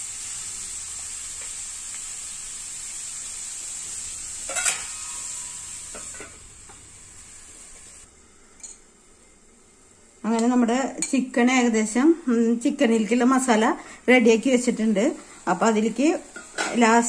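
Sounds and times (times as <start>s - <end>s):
food sizzling in a metal pan: 0.0s - 17.0s
spoon clanking on pan: 4.5s - 6.4s, 10.4s - 11.2s.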